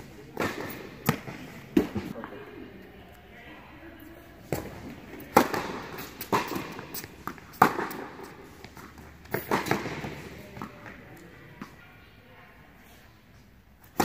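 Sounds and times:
tennis ball struck by rackets: 0.3 - 2.1, 5.3 - 10.7
tennis ball bouncing on hard court: 5.3 - 10.9.

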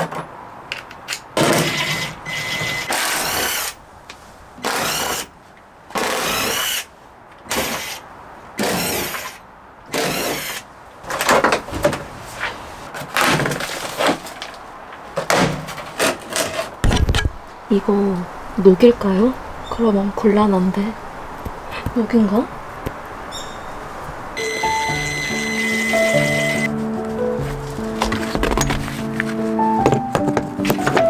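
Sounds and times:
cordless drill spinning bolts: 1.1 - 3.8, 8.6 - 10.6
plastic cover clattering: 27.5 - 31.0.

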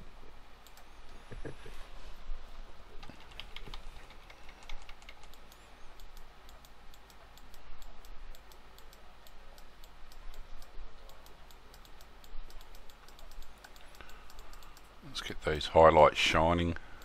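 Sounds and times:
keyboard and mouse clicking: 0.6 - 1.2, 3.0 - 14.9.

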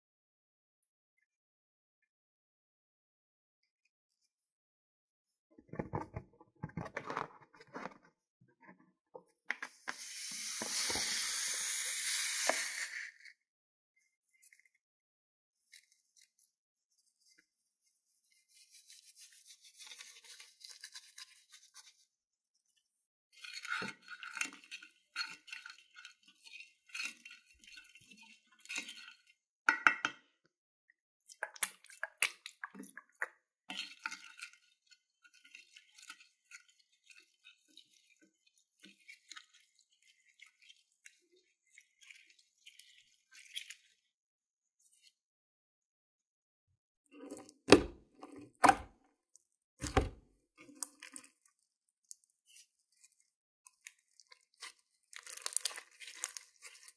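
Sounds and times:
spoon stirring sticky slime: 31.3 - 44.0, 49.9 - 56.9.

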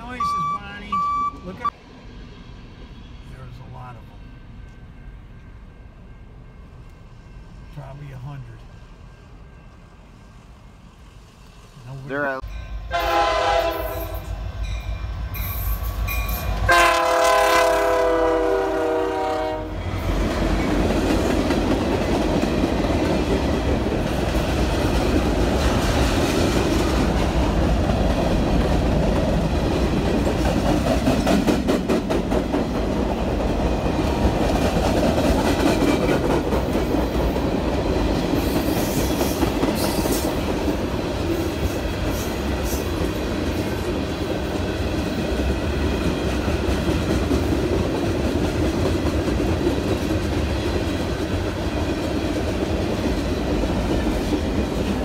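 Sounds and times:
locomotive horn blast: 12.9 - 14.4, 16.7 - 19.8.

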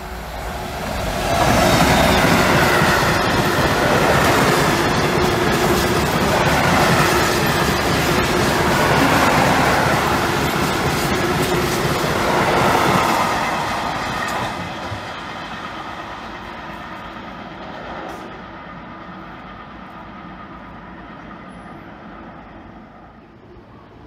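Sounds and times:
freight train rolling on rails: 0.0 - 24.0.

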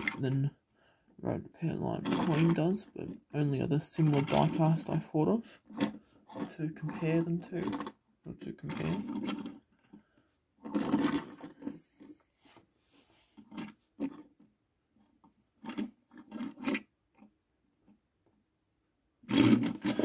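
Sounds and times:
toy cars rolling on wood: 1.8 - 10.0, 10.6 - 12.2, 19.2 - 20.0.

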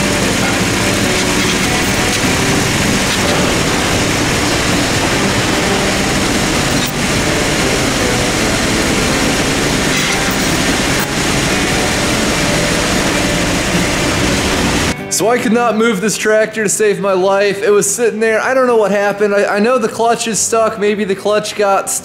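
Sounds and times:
small diesel tractor engine running: 0.0 - 15.0.

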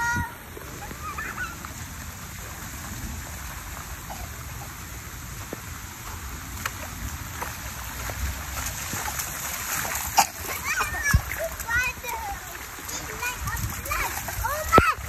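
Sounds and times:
bare feet splashing in puddles: 0.0 - 15.0
rain hissing on grass and pavement: 0.0 - 15.0.

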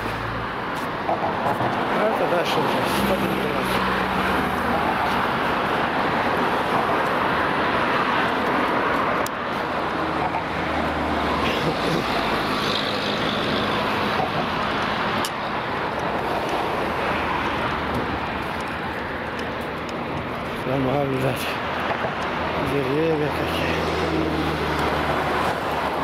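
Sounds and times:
road traffic passing: 0.0 - 26.0.

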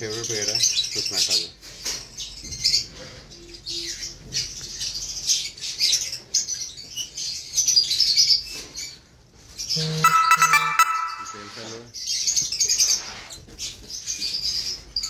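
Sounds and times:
lovebirds chirping and twittering: 0.0 - 13.0.

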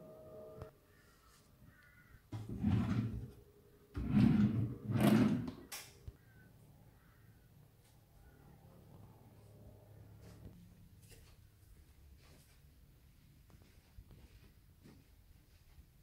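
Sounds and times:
drawers sliding on runners: 2.4 - 3.3, 4.0 - 5.6.

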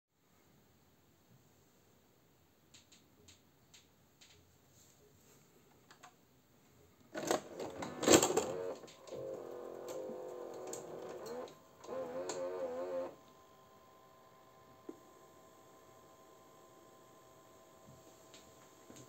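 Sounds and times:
video cassette recorder clunking: 7.2 - 13.2
wavering pitched mechanism whir: 7.3 - 14.9.

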